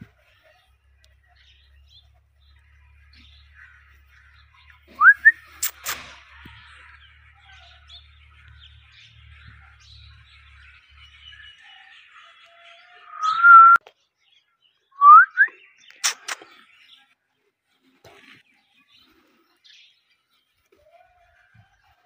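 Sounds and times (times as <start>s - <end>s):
sharp clicks: 5.6s - 6.1s, 15.9s - 16.5s
parakeet whistling: 13.1s - 13.8s.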